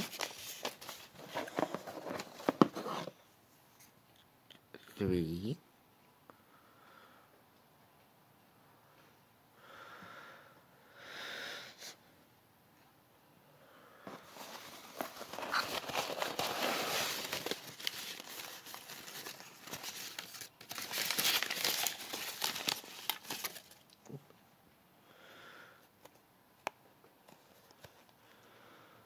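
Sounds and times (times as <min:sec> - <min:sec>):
cardboard and paper crinkling: 0:00.0 - 0:03.1, 0:14.1 - 0:24.0.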